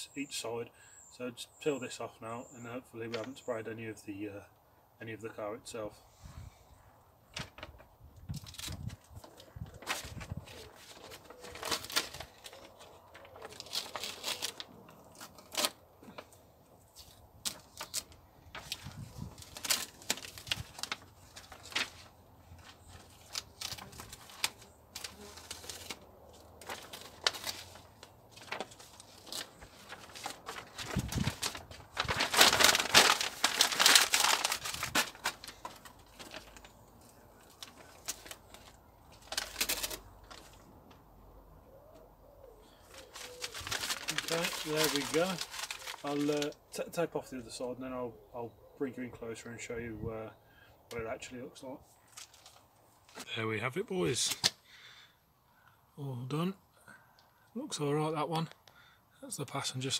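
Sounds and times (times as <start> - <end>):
paper crinkling: 7.3 - 41.0, 42.8 - 46.6, 52.0 - 53.3, 54.1 - 54.6
tape tearing: 9.8 - 15.8, 22.7 - 36.7, 37.6 - 40.5.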